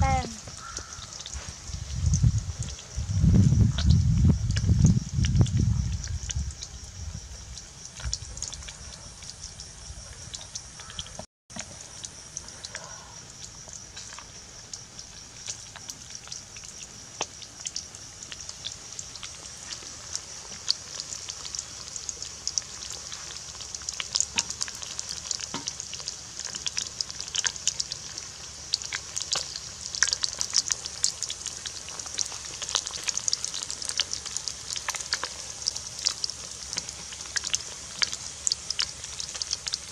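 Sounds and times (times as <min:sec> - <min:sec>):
fish deep-frying in oil: 0:00.0 - 0:39.9.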